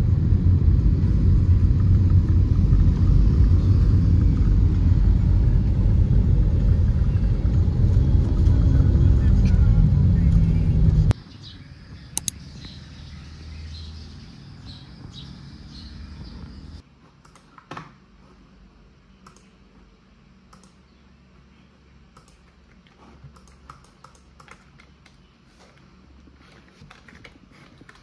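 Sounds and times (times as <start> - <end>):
car interior rumble: 0.0 - 11.2, 12.6 - 16.8
sharp clicks: 12.2 - 12.4, 19.2 - 19.5, 20.5 - 20.8, 22.1 - 22.5, 23.3 - 25.2.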